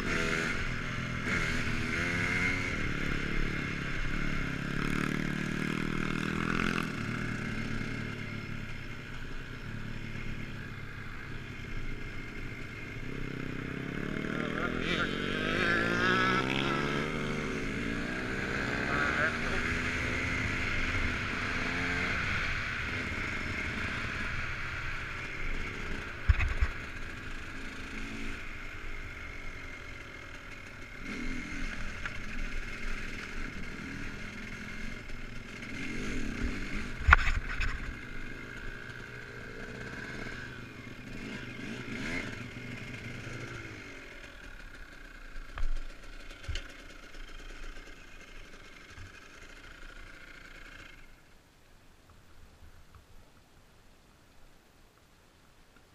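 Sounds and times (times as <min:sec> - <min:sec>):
dirt bike engine running: 0:00.0 - 0:51.2.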